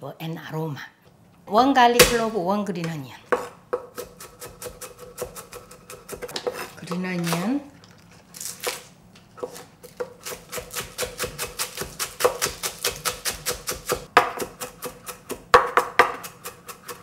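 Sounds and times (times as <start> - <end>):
knife chopping on wooden board: 3.3 - 7.5, 9.4 - 17.0.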